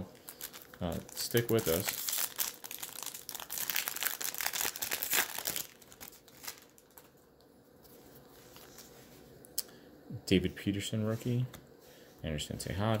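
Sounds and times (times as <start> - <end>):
card pack wrapper tearing: 0.2 - 7.1
faint handling sounds: 5.4 - 13.0.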